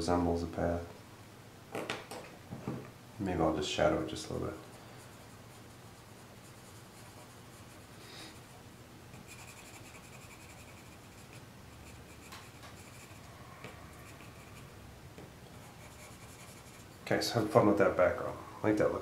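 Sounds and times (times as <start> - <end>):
pencil scratching on paper: 4.6 - 8.5, 9.1 - 13.3, 13.9 - 14.8, 15.6 - 17.0.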